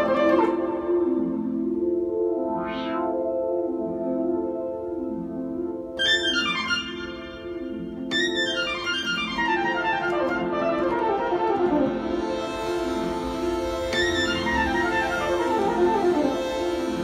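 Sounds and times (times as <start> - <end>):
synthesizer held chords: 0.0 - 17.0
falling synthesizer note cascades: 6.0 - 17.0.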